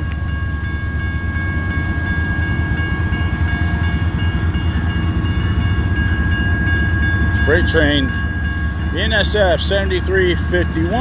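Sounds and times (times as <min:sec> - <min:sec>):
crossing warning bell ringing: 0:00.0 - 0:11.0
freight train rumbling: 0:00.0 - 0:11.0.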